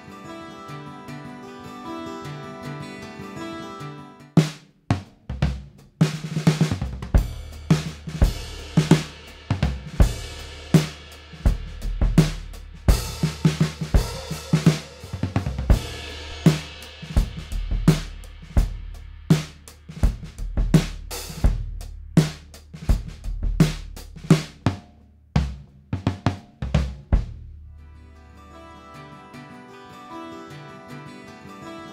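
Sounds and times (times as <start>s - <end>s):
drum kit groove: 4.4s - 27.7s
cymbals ringing: 12.9s - 18.4s.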